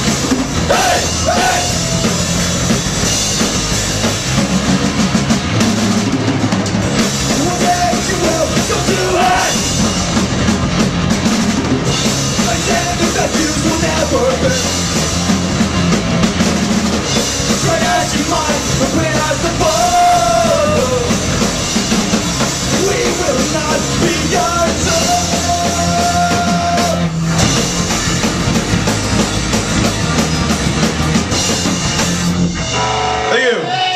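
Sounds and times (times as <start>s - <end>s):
punk rock band playing live: 0.0s - 33.9s
person singing: 17.6s - 21.2s, 22.7s - 27.1s.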